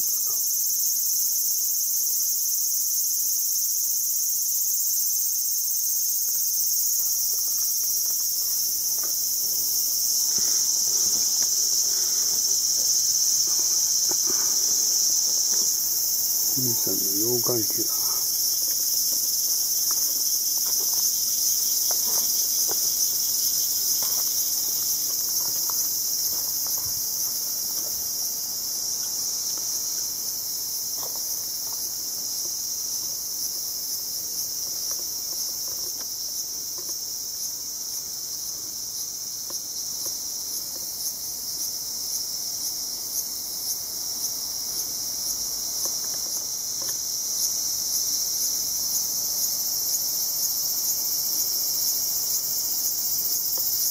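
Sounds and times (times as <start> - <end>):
insects chorus shrill buzz: 0.0 - 53.9.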